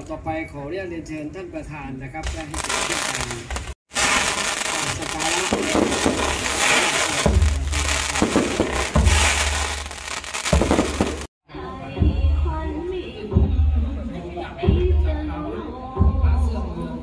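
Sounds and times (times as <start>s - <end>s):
fireworks crackling and hissing: 2.2s - 11.3s.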